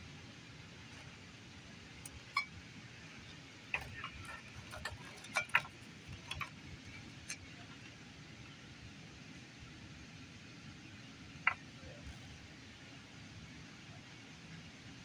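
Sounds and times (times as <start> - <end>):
low steady room hum: 0.0 - 15.0.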